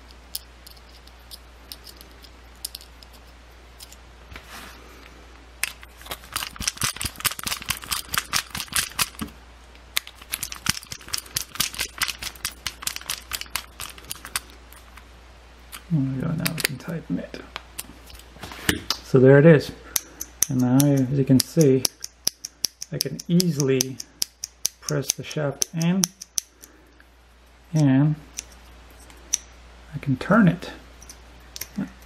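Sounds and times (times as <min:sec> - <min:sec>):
parts handled with light clicks: 0:00.0 - 0:04.0, 0:05.6 - 0:15.1, 0:15.7 - 0:16.9, 0:17.5 - 0:18.3, 0:19.9 - 0:27.1, 0:28.3 - 0:29.6, 0:30.9 - 0:32.0.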